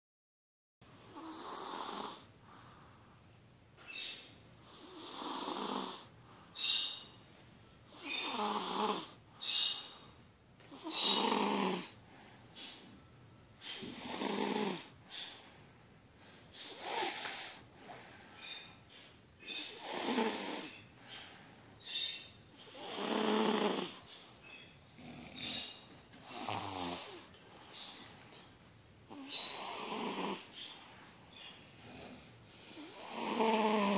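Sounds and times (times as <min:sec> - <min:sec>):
child snoring: 0:01.0 - 0:02.3, 0:04.7 - 0:06.1, 0:07.9 - 0:09.2, 0:10.7 - 0:12.0, 0:13.7 - 0:15.0, 0:16.5 - 0:18.0, 0:19.6 - 0:20.8, 0:22.5 - 0:24.1, 0:25.0 - 0:27.4, 0:29.1 - 0:30.6, 0:31.8 - 0:33.9
soft breathing: 0:02.2 - 0:05.0, 0:06.0 - 0:07.4, 0:11.8 - 0:14.1, 0:14.8 - 0:19.8, 0:20.6 - 0:22.8, 0:23.8 - 0:28.6, 0:30.3 - 0:33.1.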